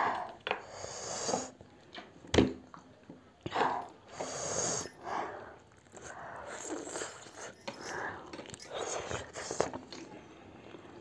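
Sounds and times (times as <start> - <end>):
noisy breaths: 3.5 - 10.6
people chewing: 5.6 - 11.0.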